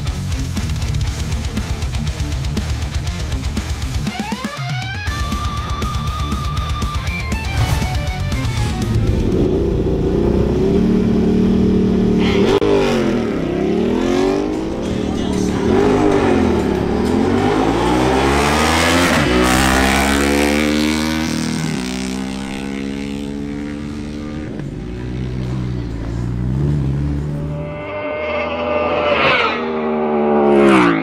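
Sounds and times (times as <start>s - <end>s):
motorcycle engines revving: 0.0s - 31.0s
motorcycles accelerating hard: 7.3s - 31.0s.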